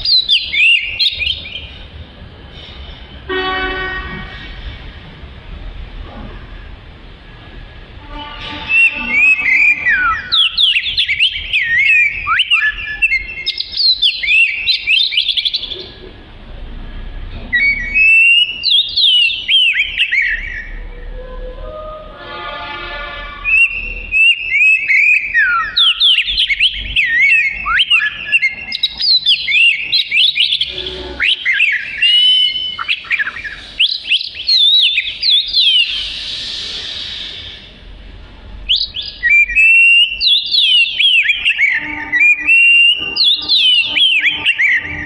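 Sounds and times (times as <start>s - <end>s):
bird singing whistled phrases: 0.0s - 1.7s, 8.7s - 15.9s, 17.5s - 21.2s, 23.4s - 37.3s, 38.7s - 45.0s
harsh raspy bird note: 8.0s - 16.1s, 17.6s - 45.0s.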